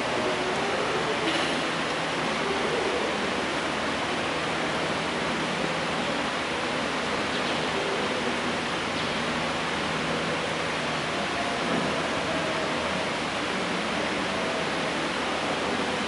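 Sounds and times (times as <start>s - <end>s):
steady rushing hiss: 0.0s - 16.0s.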